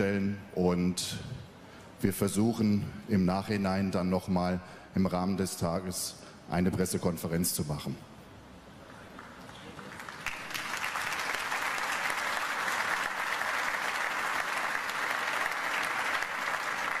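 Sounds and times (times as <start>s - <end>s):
audience applauding: 9.1s - 17.0s.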